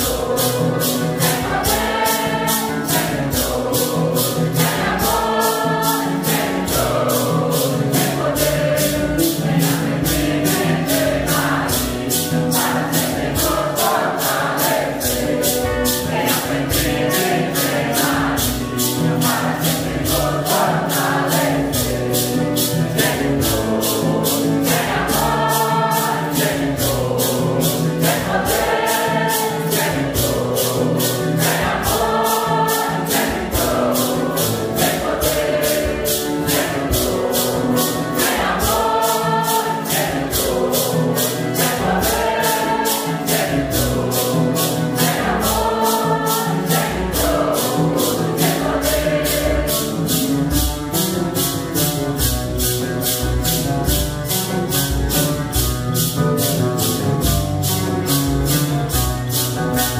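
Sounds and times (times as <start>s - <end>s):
group singing a hymn in unison: 0.0s - 50.7s
acoustic guitars: 0.0s - 59.9s
maracas shaken: 0.0s - 59.9s.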